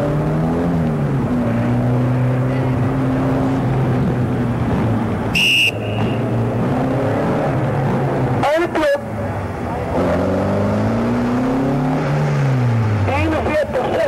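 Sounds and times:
car engine running hard: 0.0s - 14.0s
shrill whistle blast: 5.4s - 6.2s.

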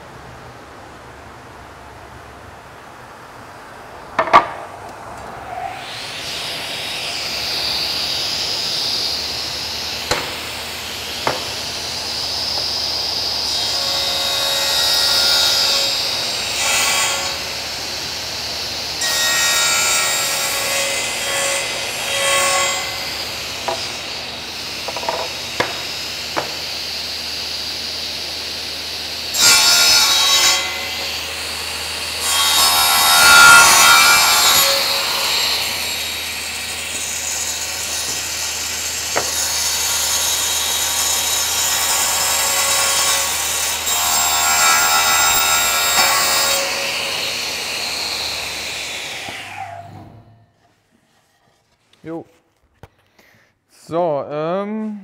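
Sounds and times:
sharp knocks: 4.2s - 4.7s, 10.1s - 10.5s, 11.2s - 11.6s, 24.9s - 26.6s
circular saw whining: 5.3s - 50.4s
saw rasping through wood: 29.2s - 49.9s.

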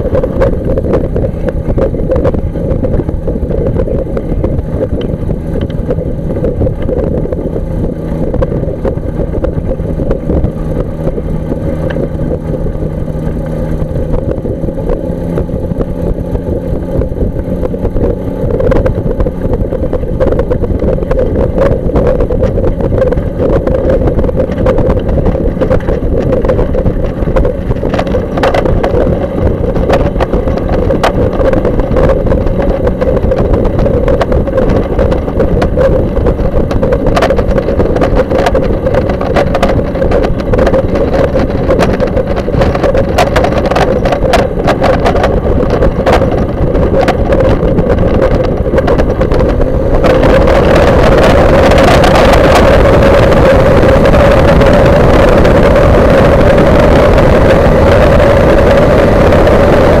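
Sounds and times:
light aircraft engine and propeller: 0.0s - 60.0s
scattered clicks: 24.3s - 60.0s.

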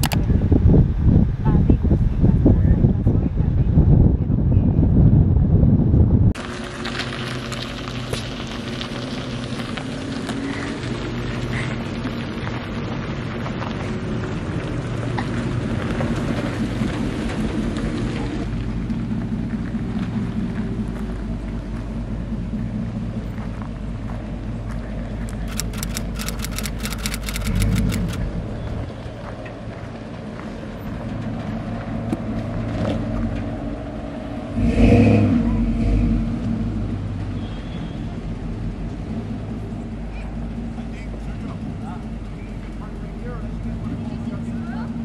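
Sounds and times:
vehicle engines running: 0.0s - 45.0s
tyres crunching on gravel: 6.4s - 22.4s
rapid clicks: 25.3s - 28.2s.

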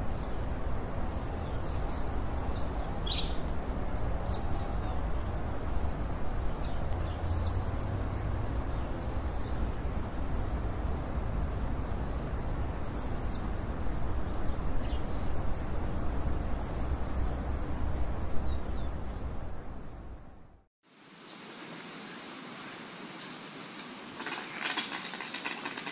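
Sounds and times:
birds chirping: 1.1s - 20.5s.

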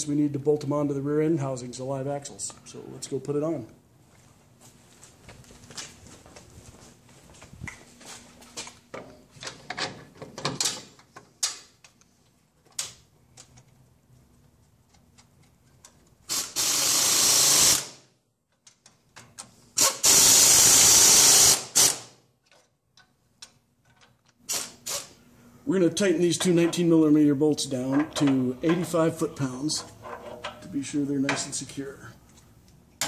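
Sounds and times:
cordless impact wrench running: 16.3s - 18.0s, 19.8s - 22.1s.

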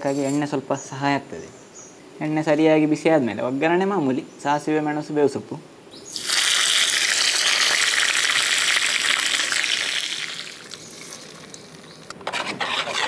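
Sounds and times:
spices sizzling in hot oil: 6.1s - 12.1s
spoon scraping and stirring pan: 12.2s - 13.0s.

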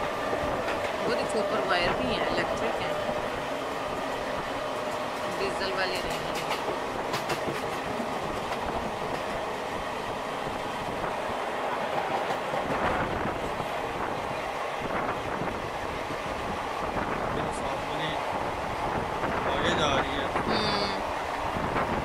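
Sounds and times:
train wheel and rail noise: 0.0s - 22.0s
wheels clicking over rail joints: 4.6s - 9.4s.

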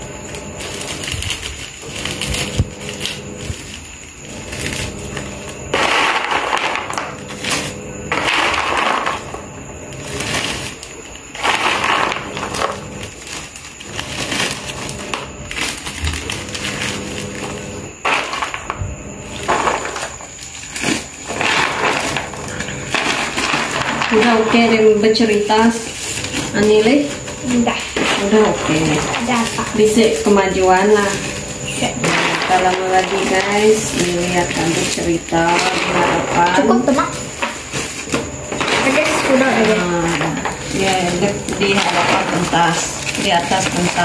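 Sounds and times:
fried snacks rattling: 0.0s - 44.0s
plastic bags crinkling: 0.0s - 44.0s.

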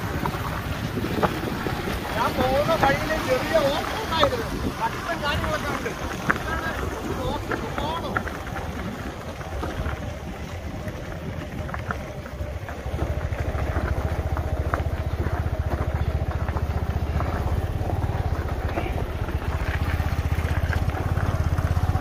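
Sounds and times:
motor scooter engine running: 0.0s - 22.0s.

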